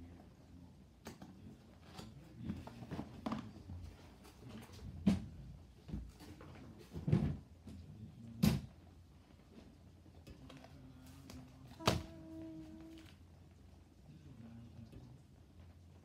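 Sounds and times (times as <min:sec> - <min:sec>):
dull thump of household items: 0:06.9 - 0:07.4.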